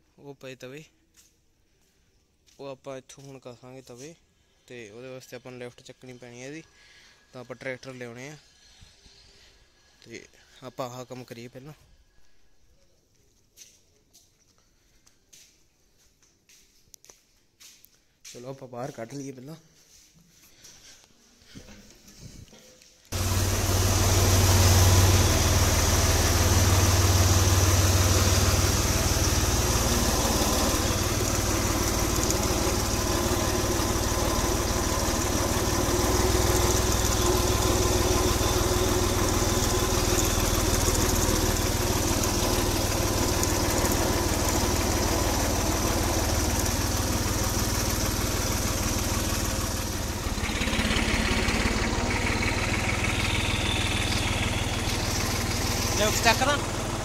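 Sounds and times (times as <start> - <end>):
tractor diesel engine running: 23.1 - 57.0.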